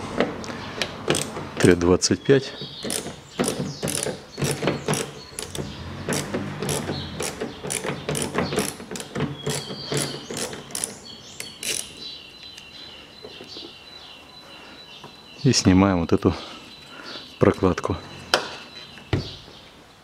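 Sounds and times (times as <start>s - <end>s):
hand ratchet clicking: 1.1s - 1.4s, 2.8s - 12.0s.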